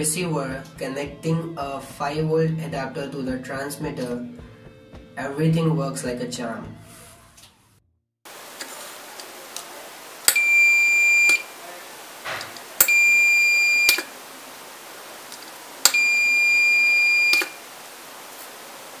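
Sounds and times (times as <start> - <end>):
buzzer beeping: 10.3 - 11.5, 12.8 - 14.1, 15.8 - 17.6.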